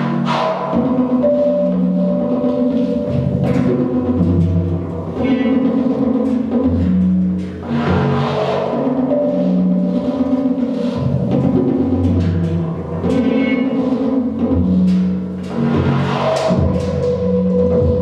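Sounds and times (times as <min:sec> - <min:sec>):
sustained high synth tones: 0:00.0 - 0:06.5
deep synthesizer bass notes: 0:00.0 - 0:18.0.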